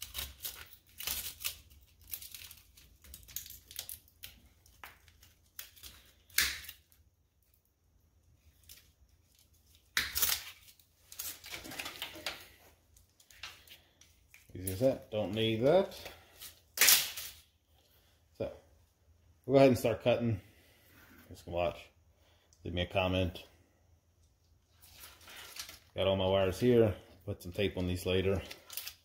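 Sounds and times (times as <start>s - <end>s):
wire bundle rustling: 0.0s - 7.6s, 8.3s - 17.5s.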